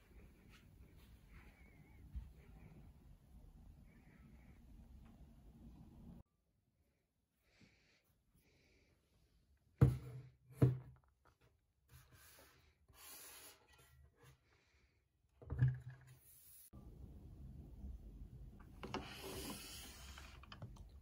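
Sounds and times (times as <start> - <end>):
faint rubbing and shuffling: 0.0 - 3.2.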